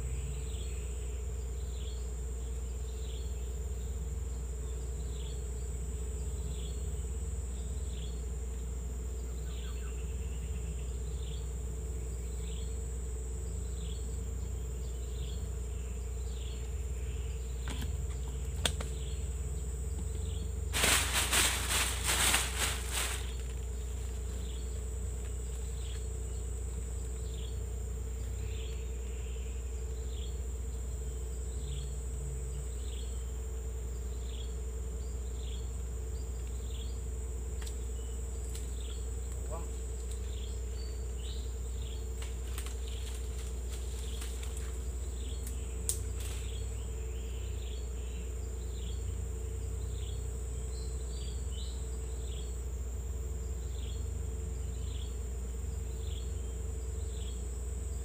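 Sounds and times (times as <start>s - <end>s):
insects droning: 0.0s - 58.0s
crackling noise: 20.7s - 24.4s.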